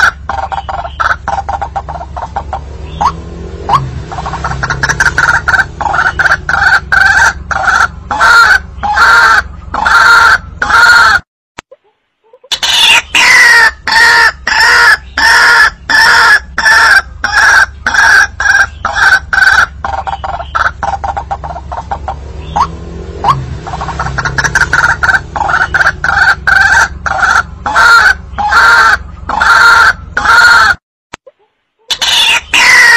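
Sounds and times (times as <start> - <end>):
waterhen calling: 0.0 - 11.2, 12.2 - 30.7, 31.8 - 32.9.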